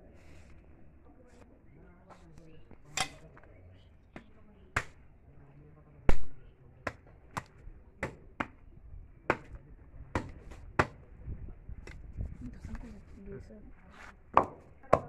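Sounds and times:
knife clicking and knocking: 0:03.0 - 0:03.2.

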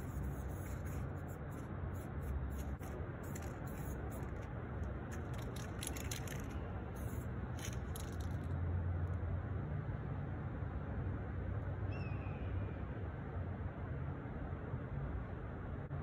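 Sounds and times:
spray paint can hissing: 0:00.0 - 0:04.5, 0:05.1 - 0:08.5
city traffic rumble: 0:00.0 - 0:16.0.

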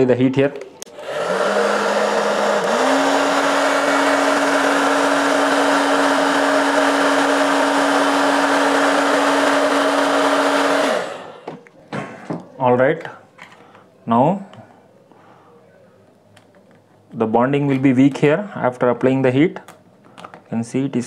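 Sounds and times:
hair dryer running: 0:00.9 - 0:11.6.

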